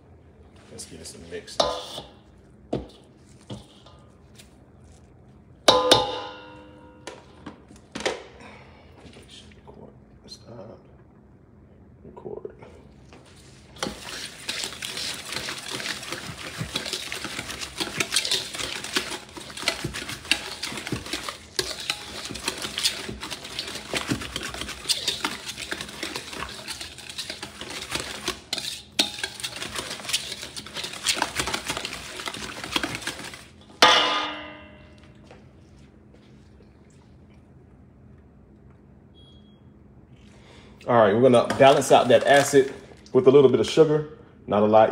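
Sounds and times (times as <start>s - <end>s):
whisk scraping steel bowl: 1.6s - 2.2s, 2.9s - 4.0s, 13.8s - 33.5s
metallic clang of bowl: 5.7s - 7.1s, 33.8s - 35.1s.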